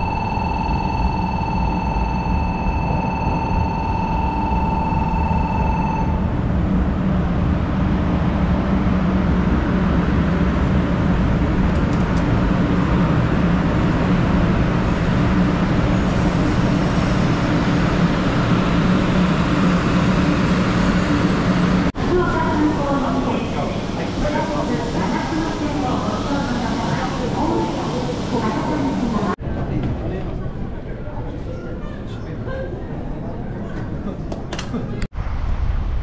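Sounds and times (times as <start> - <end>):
low hum: 0.0 - 29.4
train wheels rumbling: 6.3 - 30.4.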